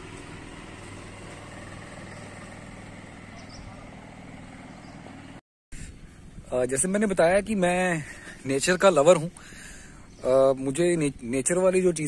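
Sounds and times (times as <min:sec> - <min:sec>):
vehicle engine idling: 0:00.0 - 0:06.4
outdoor background noise: 0:00.0 - 0:12.0.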